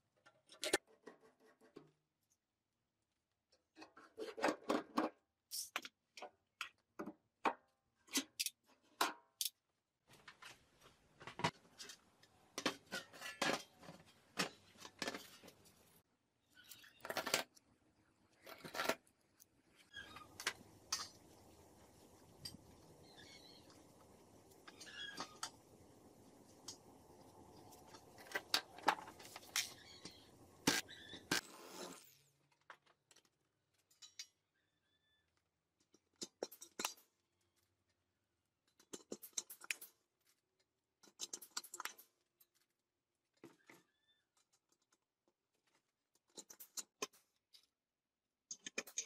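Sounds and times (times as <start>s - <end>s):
faint steady hiss: 19.5s - 32.3s.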